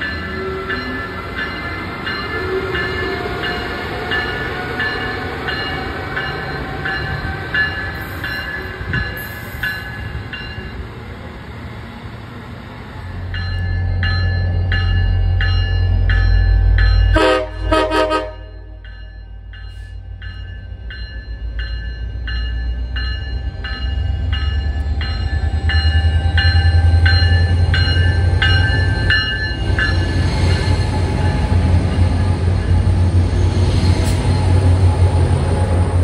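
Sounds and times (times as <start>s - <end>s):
locomotive bell ringing: 0.0s - 11.0s, 13.2s - 35.4s
train wheel and brake noise: 0.0s - 36.0s
train horn blast: 17.1s - 18.8s.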